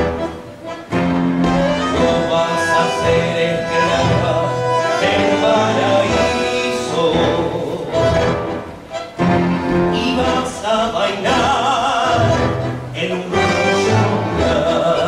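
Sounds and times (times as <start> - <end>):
tango orchestra playing: 0.0 - 15.0
man singing into microphone: 1.9 - 8.2, 9.8 - 15.0.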